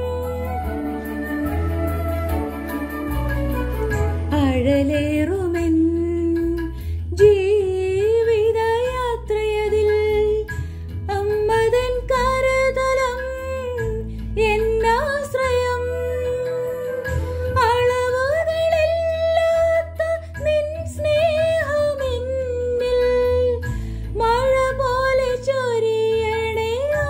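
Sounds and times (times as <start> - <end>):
instrumental accompaniment with bass: 0.0 - 27.0
woman singing a devotional song: 4.3 - 27.0.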